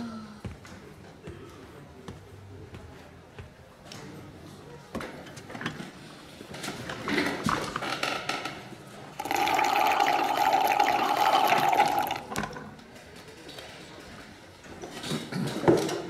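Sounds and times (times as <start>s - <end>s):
slurping through a straw: 9.2s - 12.3s.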